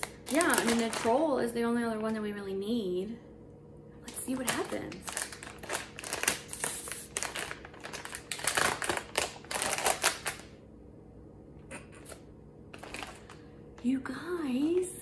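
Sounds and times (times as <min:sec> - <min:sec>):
plastic packaging crinkling: 0:00.0 - 0:02.3, 0:04.1 - 0:10.6, 0:12.7 - 0:13.4.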